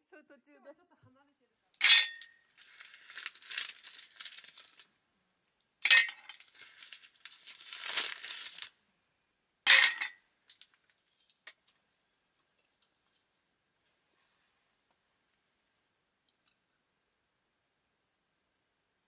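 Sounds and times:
tableware clinking: 1.8s - 2.3s, 5.8s - 6.6s, 9.7s - 10.2s
crinkling and rustling: 2.4s - 4.9s, 5.9s - 8.8s.

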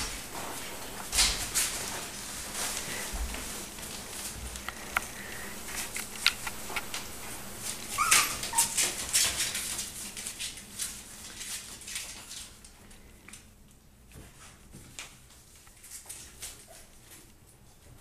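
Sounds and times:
light clicks and scratches: 1.1s - 13.5s
puppies whimpering: 7.6s - 9.2s.

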